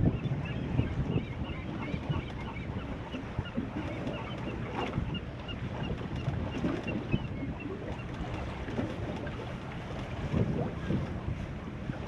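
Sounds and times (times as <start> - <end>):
water washing against boat: 0.0 - 12.0
wind on microphone: 0.0 - 12.0.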